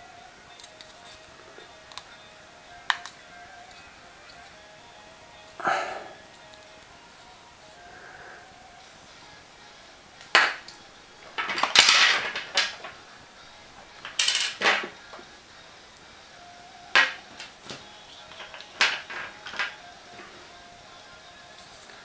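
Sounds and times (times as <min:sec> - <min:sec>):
small hard objects clattering: 0:10.2 - 0:15.3, 0:16.8 - 0:20.3.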